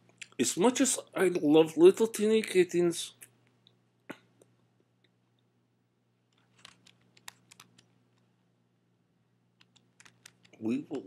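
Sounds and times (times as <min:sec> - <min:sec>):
low steady hum: 0:00.0 - 0:11.0
keyboard typing: 0:06.3 - 0:07.9, 0:09.6 - 0:10.6.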